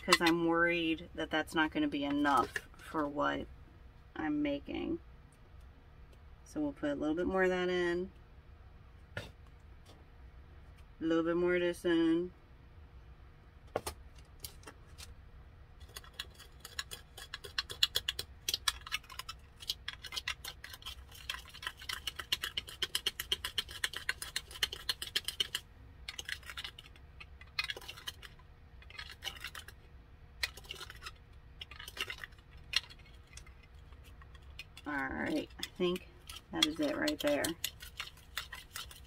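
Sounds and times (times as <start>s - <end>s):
glitter rattling in a container: 15.8s - 39.0s.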